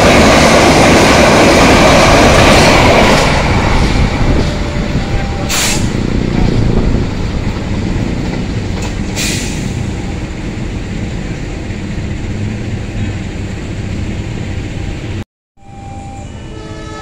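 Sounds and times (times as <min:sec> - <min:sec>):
train wheels rumbling on rail: 0:00.0 - 0:15.2
short hiss: 0:05.5 - 0:05.9.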